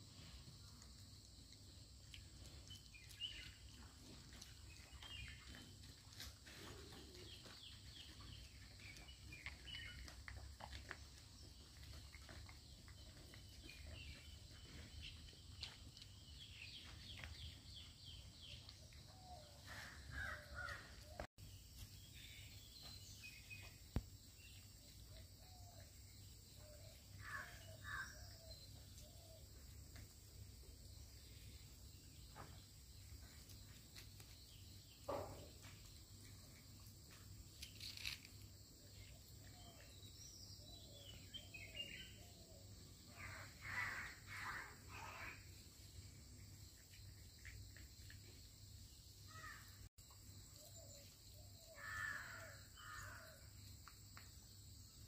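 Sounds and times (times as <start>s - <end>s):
dog chewing and licking: 8.6s - 14.3s.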